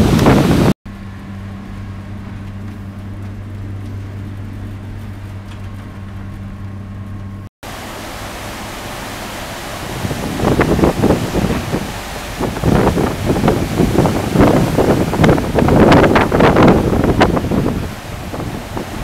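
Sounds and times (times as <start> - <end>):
rough sea: 0.0 - 0.8, 7.6 - 19.0
wind buffeting microphone: 0.0 - 0.8, 7.7 - 19.0
ship machinery hum: 0.0 - 19.0.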